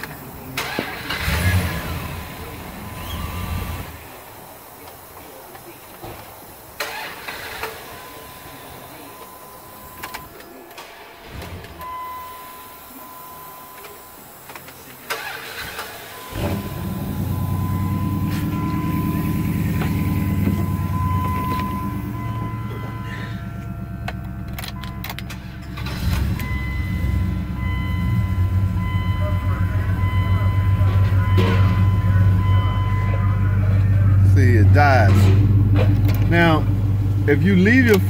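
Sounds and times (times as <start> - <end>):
truck engine revving: 0.0 - 5.0, 11.2 - 38.0
truck engine cranking and starting: 0.0 - 38.0.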